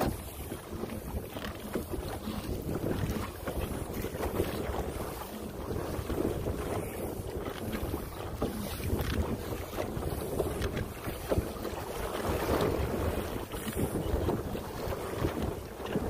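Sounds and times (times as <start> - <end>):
wind noise on microphone: 0.0 - 16.0.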